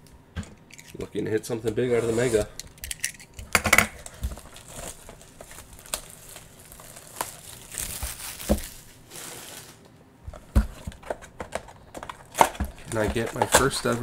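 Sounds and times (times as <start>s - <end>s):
cardboard packaging crinkling and tearing: 4.0s - 9.9s.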